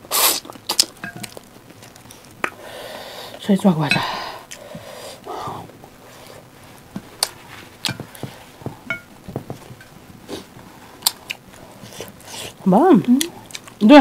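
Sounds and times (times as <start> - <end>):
wet chewing and lip smacks: 13.2 - 13.8.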